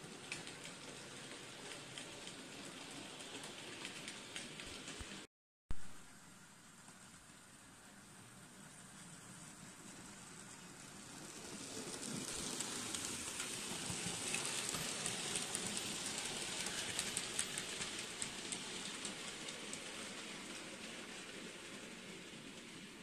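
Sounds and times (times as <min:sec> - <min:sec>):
model train wheels rattling: 0:00.0 - 0:05.2, 0:09.0 - 0:23.0
wheels clicking over track: 0:00.0 - 0:05.3, 0:09.8 - 0:23.0.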